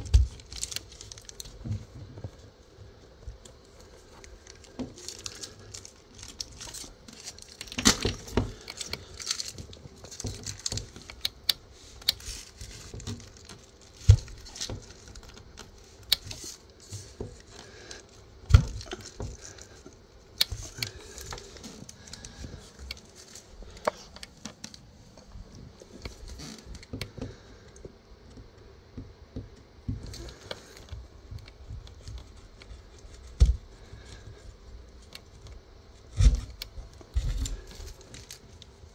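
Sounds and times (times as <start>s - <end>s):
handling rustling and clicks: 0.0s - 28.5s.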